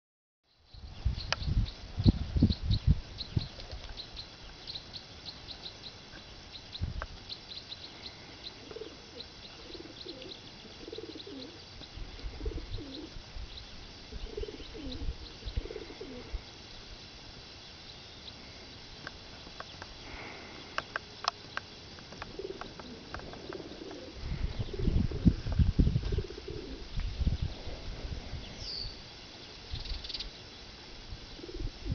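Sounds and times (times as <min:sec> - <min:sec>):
small birds chirping: 0:00.5 - 0:31.9
dove cooing: 0:08.0 - 0:13.2, 0:14.1 - 0:16.5, 0:22.2 - 0:26.9, 0:31.3 - 0:31.9.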